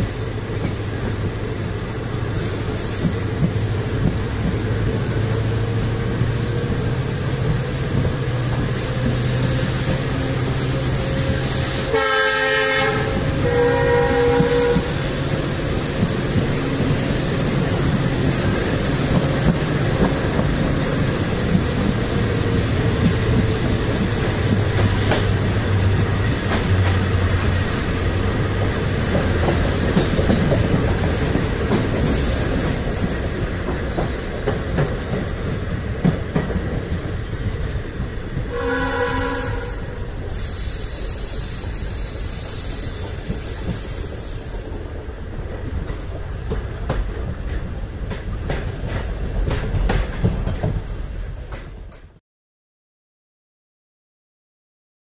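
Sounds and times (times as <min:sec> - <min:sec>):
train wheels rumbling on rails: 0:00.0 - 0:52.2
train horn: 0:11.3 - 0:15.0, 0:38.5 - 0:40.1.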